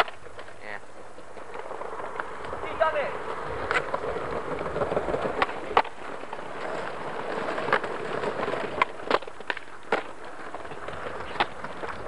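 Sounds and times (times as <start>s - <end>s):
skateboard clacks: 0.0s - 12.0s
skateboard wheels rolling on concrete: 0.0s - 12.0s.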